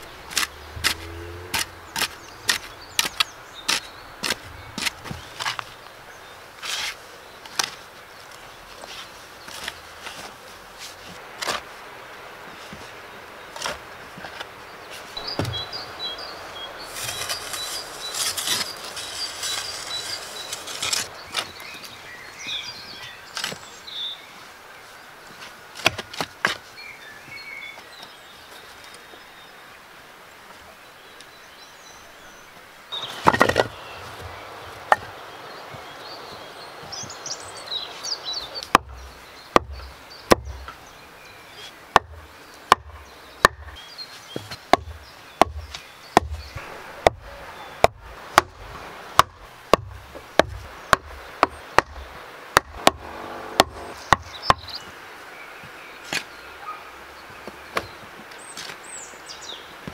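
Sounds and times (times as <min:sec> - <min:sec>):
wooden stakes knocked into ground: 0:00.3 - 0:05.7, 0:15.2 - 0:15.7, 0:16.9 - 0:21.6, 0:33.0 - 0:35.1, 0:41.9 - 0:54.7
shovel scraping into dry earth: 0:06.6 - 0:07.8, 0:16.8 - 0:22.0.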